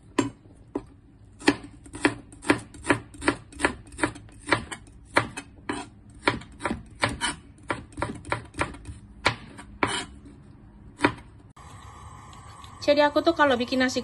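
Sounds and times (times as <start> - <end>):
knife chopping on plastic board: 0.1 - 10.1, 11.0 - 11.3.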